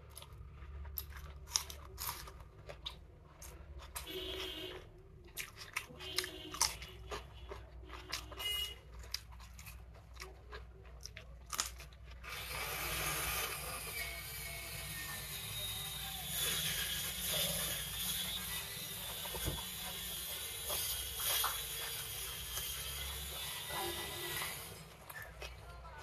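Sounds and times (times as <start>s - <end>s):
chewing with wet mouth clicks: 0.0s - 12.3s.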